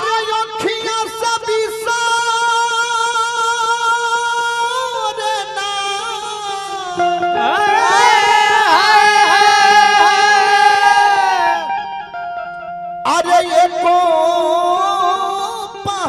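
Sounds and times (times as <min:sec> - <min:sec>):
man singing devotional song: 0:00.0 - 0:12.0, 0:13.0 - 0:16.0
instrumental accompaniment: 0:05.6 - 0:16.0.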